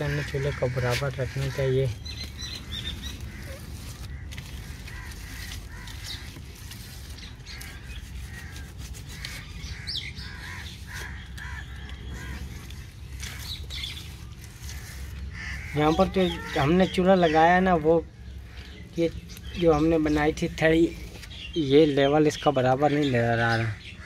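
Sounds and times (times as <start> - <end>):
birds chirping: 0.0 - 24.0.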